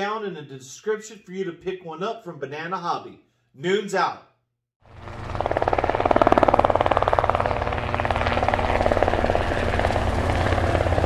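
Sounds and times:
helicopter rotor chopping: 4.8 - 11.0
low engine drone: 4.8 - 11.0.

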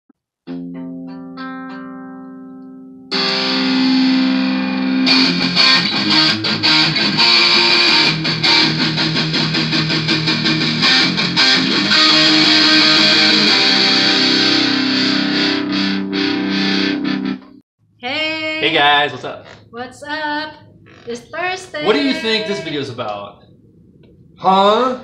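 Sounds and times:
distorted electric guitar chords: 0.5 - 17.6, 20.9 - 23.0
band playing steady beat: 21.9 - 22.9.

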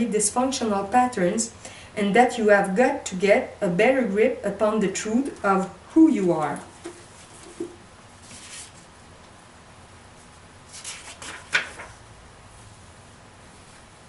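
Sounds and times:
book pages turning: 6.8 - 8.8, 10.7 - 12.0.

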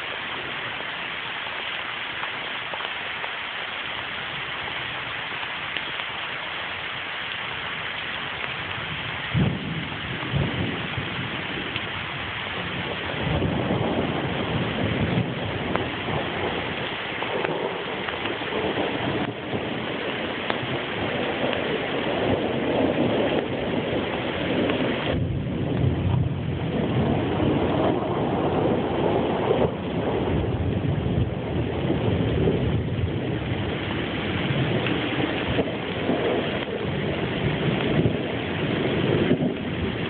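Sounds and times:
rain falling: 0.0 - 40.0
rumble of thunder: 8.3 - 40.0.

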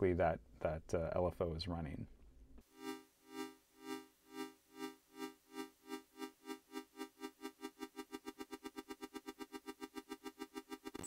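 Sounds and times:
pulsing synth note: 2.8 - 11.0.

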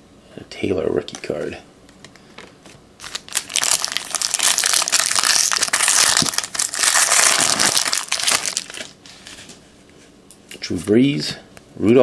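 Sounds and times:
foil wrapper crinkling: 3.0 - 9.5.

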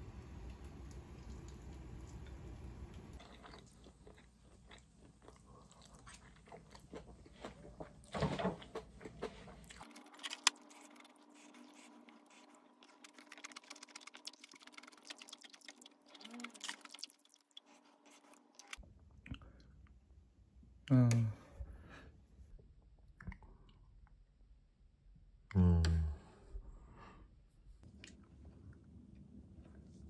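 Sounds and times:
chewing: 3.1 - 19.7.

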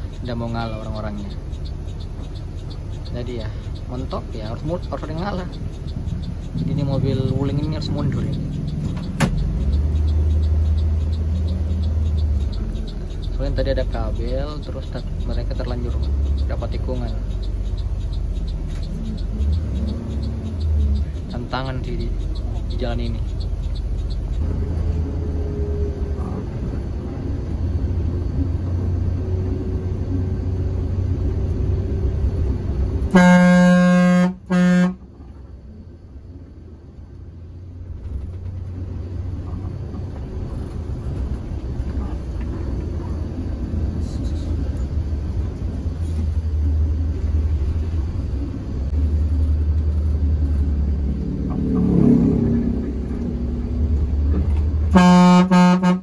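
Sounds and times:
bus engine and road rumble: 0.0 - 56.0
vehicle horn honking: 33.1 - 35.0, 54.9 - 56.0.

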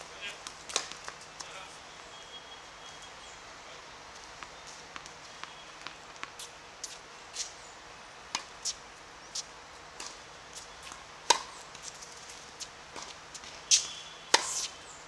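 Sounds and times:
tennis ball hitting racket: 0.6 - 1.2, 8.3 - 8.8, 10.0 - 14.8.

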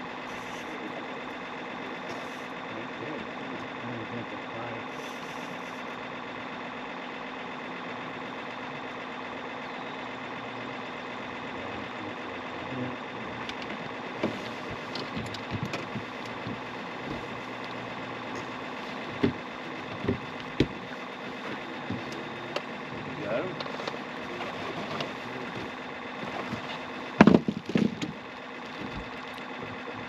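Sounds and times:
boat motor humming: 0.0 - 30.0
sharp knocks and clicks: 13.4 - 23.0, 23.6 - 30.0.

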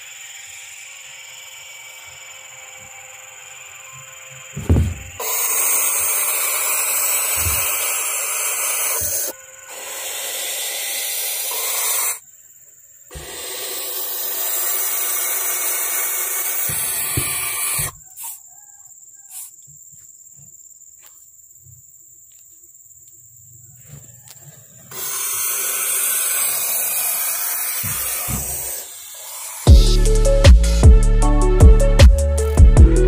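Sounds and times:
owl chicks hissing: 5.2 - 12.2, 13.1 - 19.6, 24.6 - 27.1.

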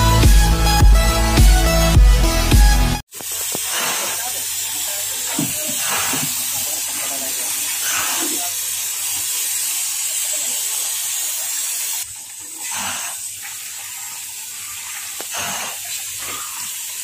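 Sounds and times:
steady hiss: 3.1 - 12.0
liquid trickling and splashing: 3.1 - 17.0.

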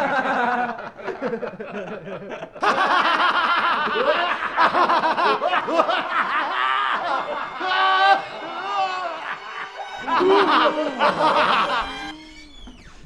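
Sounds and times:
people laughing: 0.0 - 12.8.

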